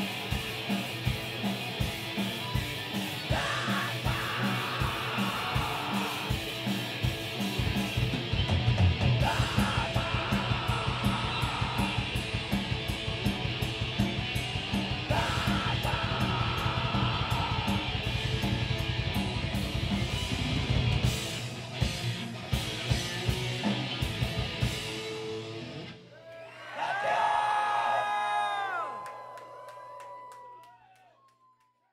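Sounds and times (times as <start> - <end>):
distorted electric guitars: 0.0 - 26.0
harsh yelled vocals: 3.1 - 7.9, 9.0 - 13.5, 14.3 - 18.8, 26.1 - 31.0.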